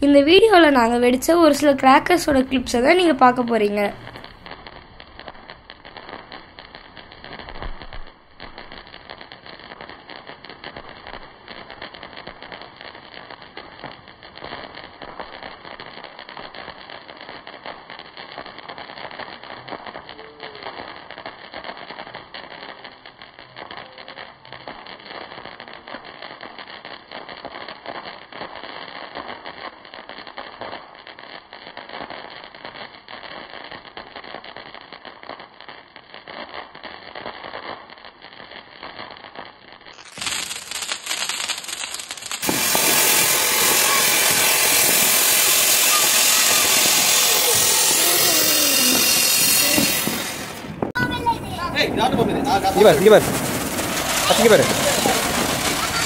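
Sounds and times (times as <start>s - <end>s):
fountain firework hissing: 0.0s - 4.6s, 39.9s - 56.0s
fireworks crackling and popping: 0.0s - 56.0s.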